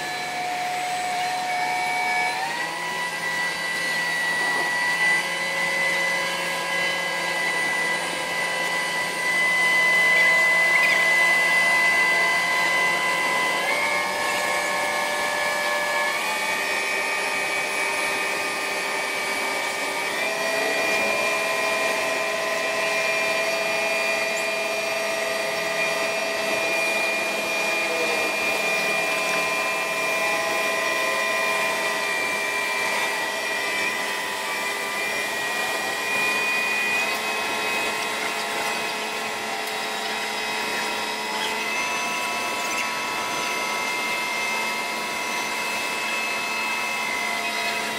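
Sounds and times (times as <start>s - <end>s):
crane engine whining under load: 0.0s - 47.9s.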